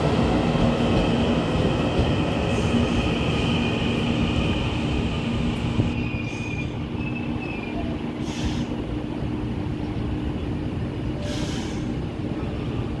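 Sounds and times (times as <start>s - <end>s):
train rumbling with electric hum: 0.0s - 13.0s
brief hisses: 11.3s - 11.9s.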